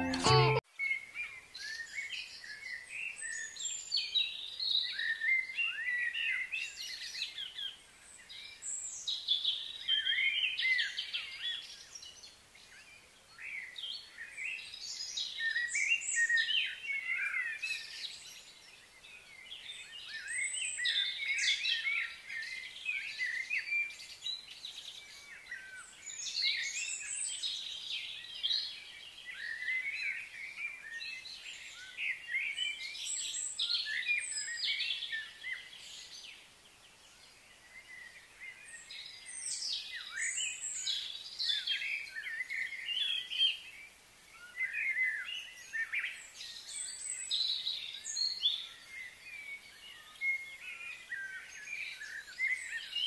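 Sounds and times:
birds chirping and singing: 44.4 - 53.0.

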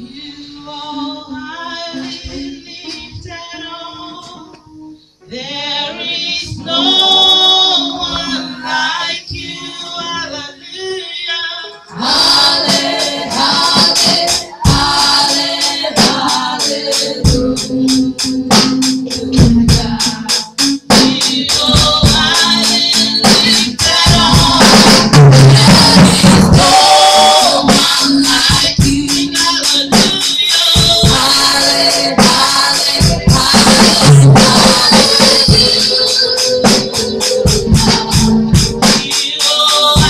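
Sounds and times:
women singing through a pa: 0.0 - 4.6, 5.2 - 40.0
electronic keyboard: 0.0 - 40.0
shaken percussion beat: 12.0 - 40.0.

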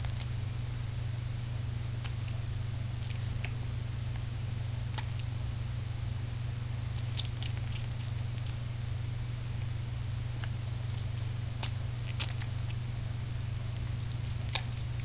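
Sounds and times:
steady low hum: 0.0 - 15.0
puppy suckling: 2.0 - 4.2, 4.8 - 5.4, 6.9 - 15.0.

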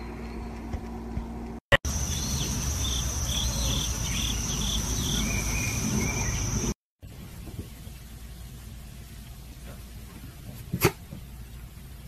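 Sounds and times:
insects chirping: 1.9 - 6.8.

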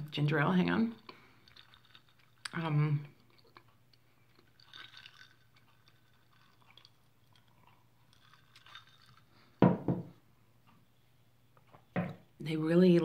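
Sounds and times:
person chewing crunchy food: 1.1 - 2.6, 3.2 - 9.6.

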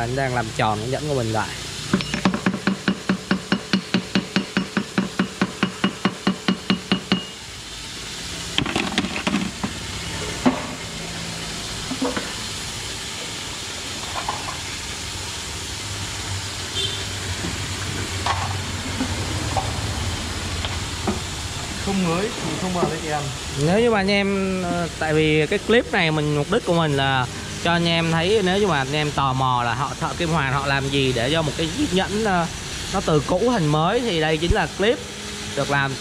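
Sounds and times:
steady hiss: 0.0 - 36.0
tools clinking: 1.9 - 2.6.

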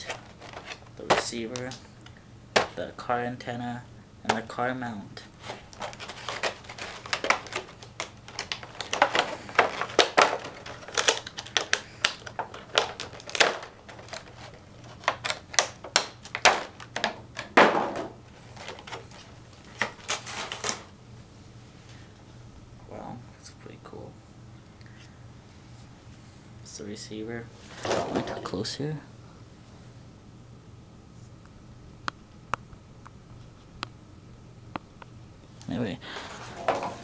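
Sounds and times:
plastic packaging crackling: 0.0 - 2.8, 5.3 - 17.4, 18.2 - 20.9.

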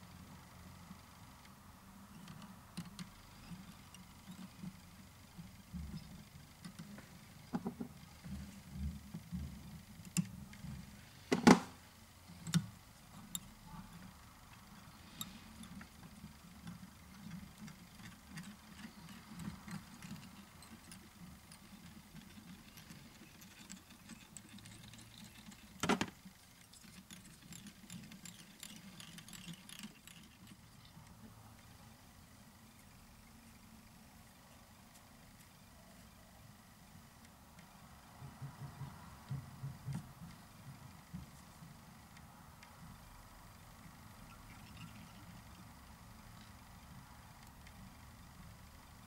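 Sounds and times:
low steady hum: 0.0 - 49.0
small clicks and rustles of fingers: 12.2 - 31.7.

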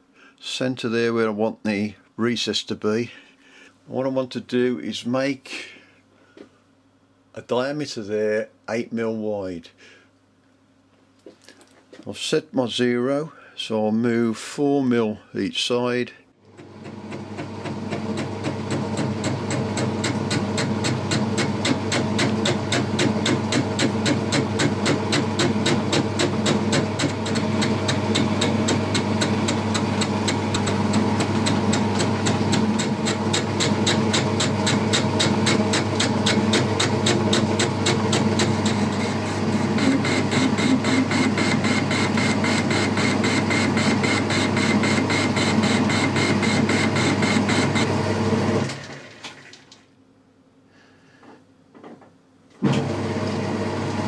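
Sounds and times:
lathe motor hum: 16.5 - 49.1, 52.7 - 54.0
lathe cutting steel with sharp strikes: 16.8 - 48.0.

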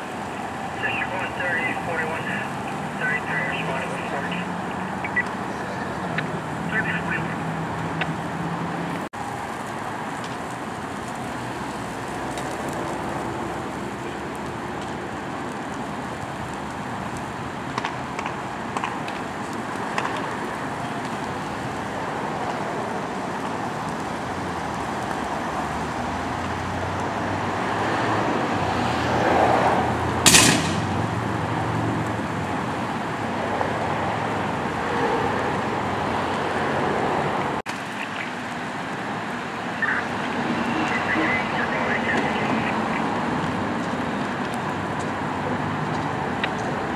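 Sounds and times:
road traffic: 0.0 - 46.9
rush of flames: 0.0 - 46.9
crackling pops: 0.1 - 8.2, 8.9 - 27.7, 30.1 - 33.4, 37.7 - 46.8
sharp bang from burning car: 30.2 - 31.3.

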